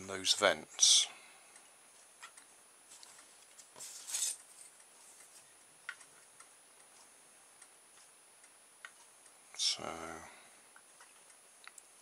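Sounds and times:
scraping rustle: 0:02.9 - 0:05.4.

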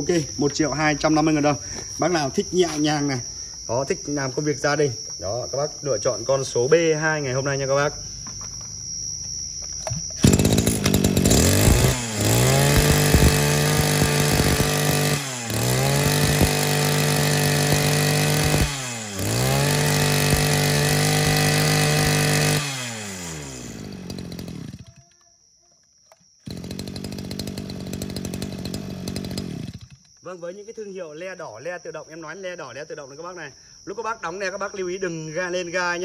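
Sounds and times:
brush cutter engine revving: 0:09.8 - 0:25.1, 0:26.4 - 0:30.1.

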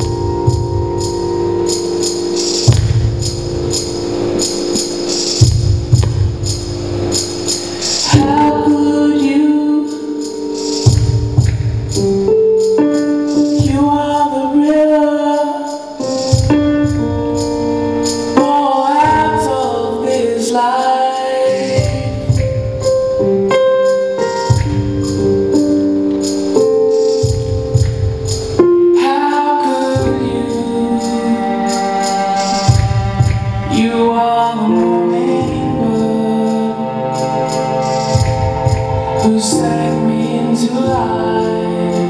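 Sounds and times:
bass line: 0:00.0 - 0:09.4
song with singing: 0:00.0 - 0:42.0
jingling percussion: 0:09.8 - 0:14.3, 0:20.8 - 0:42.0.

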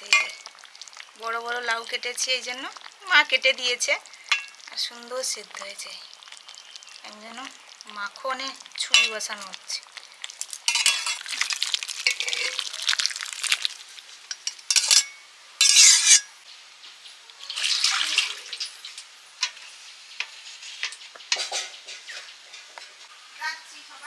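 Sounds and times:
metal ladle scraping and clinking: 0:00.0 - 0:00.5, 0:10.7 - 0:12.6, 0:14.3 - 0:16.3.

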